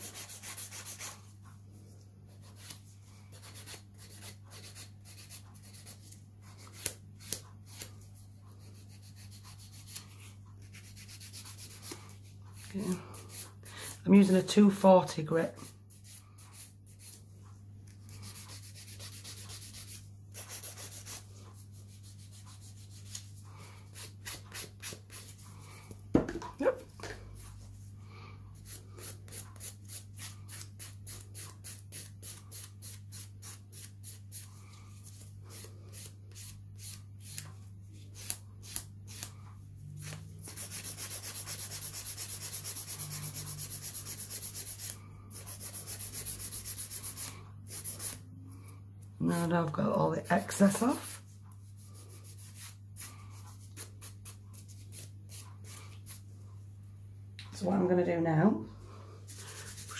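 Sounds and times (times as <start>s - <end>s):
nail file rasping: 2.4s - 14.0s, 18.1s - 23.3s, 40.0s - 48.2s.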